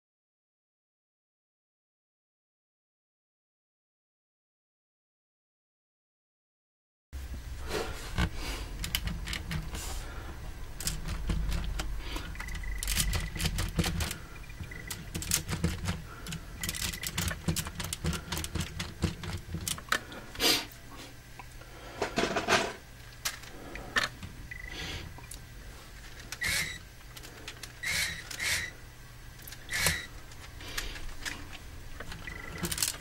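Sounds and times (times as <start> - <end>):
low electric motor hum: 7.2 - 22.1, 22.8 - 33.0
plastic parts clicking and rattling: 8.1 - 10.0, 10.6 - 20.1, 22.0 - 24.2, 25.2 - 33.0.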